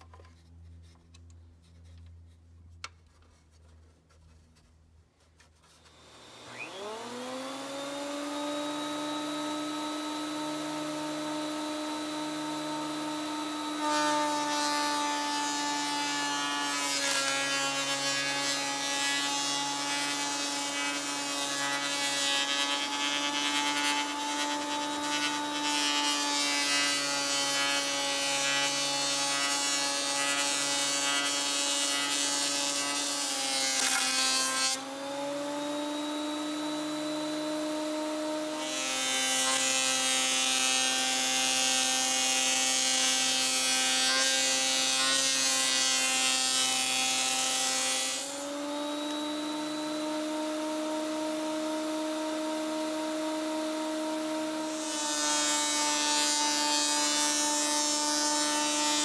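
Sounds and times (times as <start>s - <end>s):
planer cutting hiss: 5.8s - 34.9s
thickness planer motor whine: 5.8s - 59.0s.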